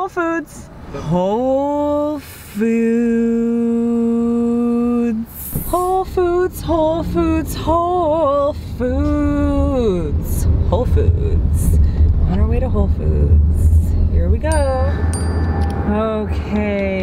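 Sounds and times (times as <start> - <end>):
car road rumble: 0.5 - 17.0
woman singing: 1.3 - 11.3.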